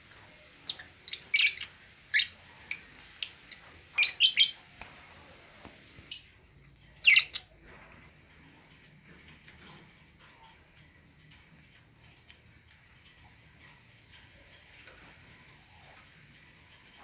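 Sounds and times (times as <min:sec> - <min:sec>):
lovebirds chirping: 0:00.5 - 0:04.8, 0:07.0 - 0:07.5.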